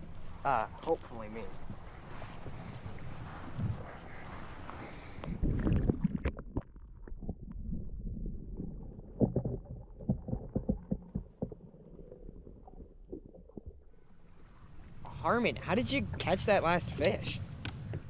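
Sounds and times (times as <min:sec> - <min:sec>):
muffled underwater sloshing: 0:00.0 - 0:18.0
underwater knocks and pops: 0:05.2 - 0:13.9.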